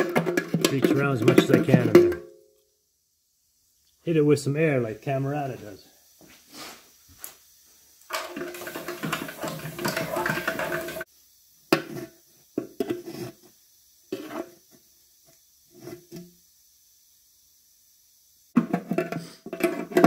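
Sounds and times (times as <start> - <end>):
compressed air hissing: 5.8 - 7.4, 8.1 - 11.3, 19.0 - 19.6
rags scraping and rustling: 8.1 - 11.1.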